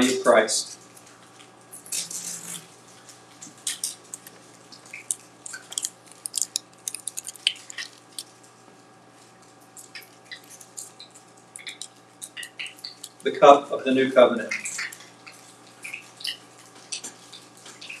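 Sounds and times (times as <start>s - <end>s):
plates and cups clicking: 5.1s - 8.2s.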